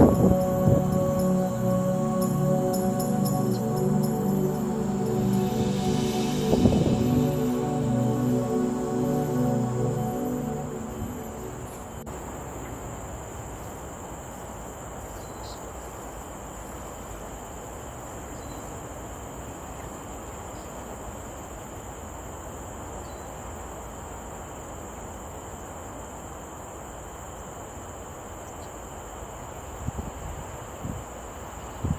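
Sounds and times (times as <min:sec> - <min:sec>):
low rushing noise: 0:00.0 - 0:13.0
insects chirring: 0:00.0 - 0:31.9.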